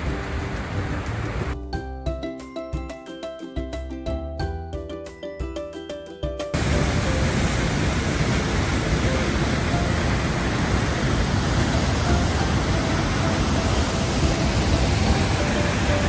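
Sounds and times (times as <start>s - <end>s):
waterfall roaring: 0.0s - 1.6s, 6.6s - 16.0s.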